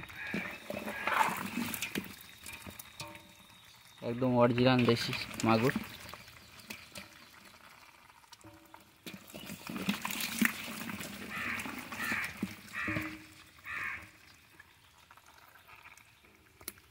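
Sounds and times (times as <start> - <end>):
fish slapping wetly in water: 0.0 - 3.2, 9.0 - 14.2.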